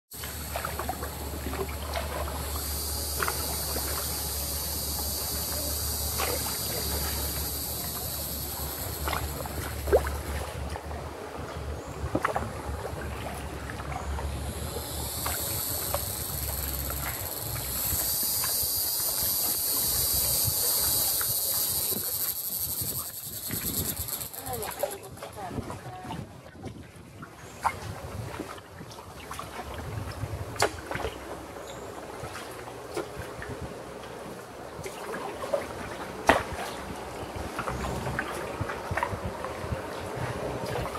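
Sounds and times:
canoe gliding through water: 0:00.1 - 0:40.9
paddle splashes: 0:00.1 - 0:40.9
high-pitched buzz: 0:00.2 - 0:10.4, 0:14.1 - 0:25.3.

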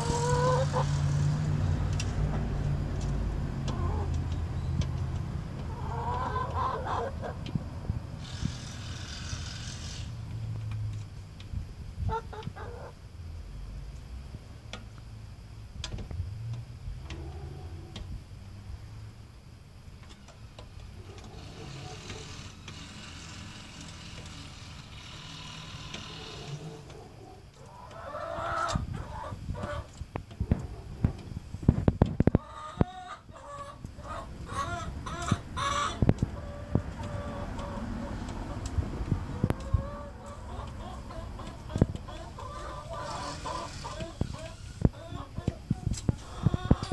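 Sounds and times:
hens clucking: 0:00.0 - 0:10.1, 0:12.0 - 0:13.0, 0:20.0 - 0:46.9
hens pecking taps: 0:01.9 - 0:07.6, 0:25.9 - 0:46.9.

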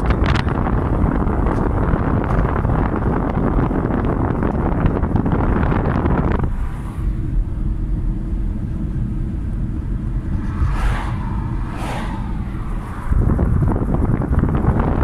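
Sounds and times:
wind and road noise in car: 0:00.0 - 0:15.0
oncoming car passing: 0:05.2 - 0:15.0.

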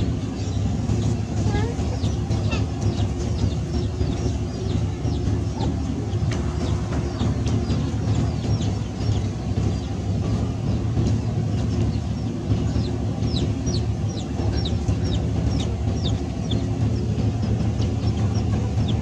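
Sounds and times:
birds chirping: 0:00.0 - 0:19.0
low rumble: 0:00.0 - 0:19.0.

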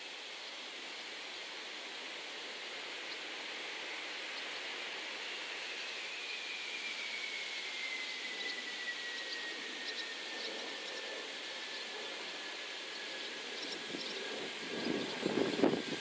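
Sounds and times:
jet engine whine: 0:00.0 - 0:16.0
steady rushing noise: 0:00.8 - 0:16.0.

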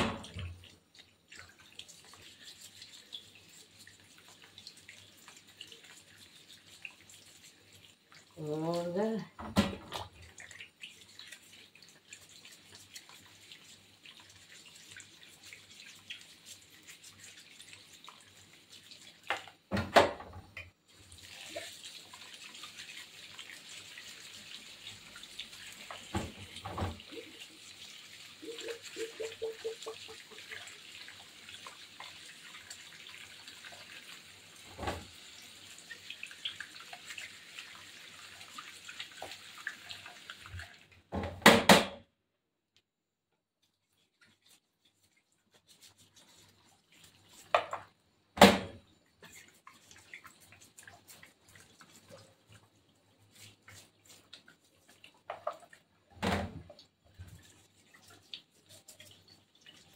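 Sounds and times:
tap running into steel sink: 0:25.9 - 0:27.1
hands rubbing tomatoes: 0:43.8 - 0:47.5, 0:49.2 - 0:55.3, 0:57.2 - 0:59.9.

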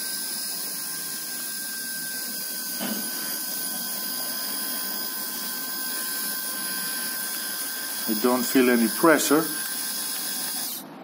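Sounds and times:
electric shaver whining: 0:00.0 - 0:11.0
brief thump: 0:02.8 - 0:03.1.

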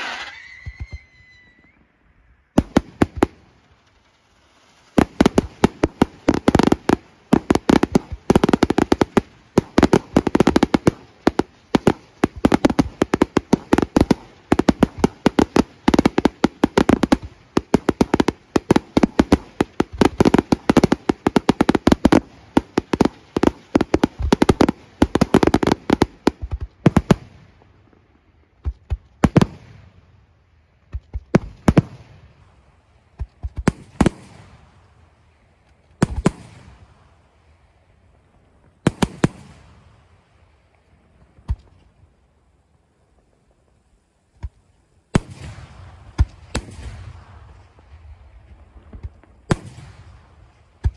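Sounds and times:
firework shells bursting: 0:00.0 - 0:27.3.

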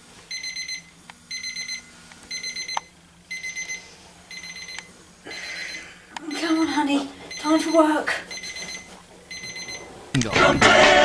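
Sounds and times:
alarm clock high beeps: 0:00.3 - 0:09.9.

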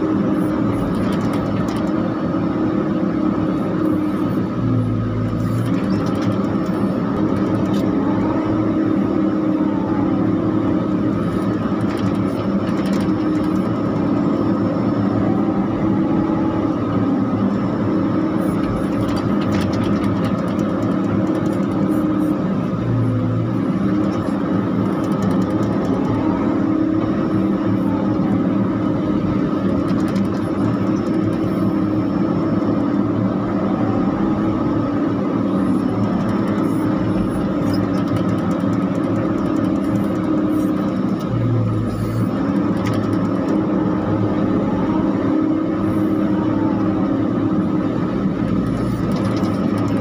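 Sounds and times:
excavator diesel engine running: 0:00.0 - 0:50.0
faint hydraulic whine: 0:39.6 - 0:49.6.

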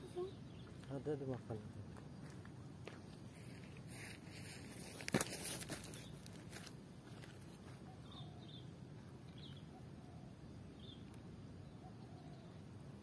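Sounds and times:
low outdoor background: 0:00.0 - 0:13.0
faint high bird chirps: 0:07.7 - 0:12.7.

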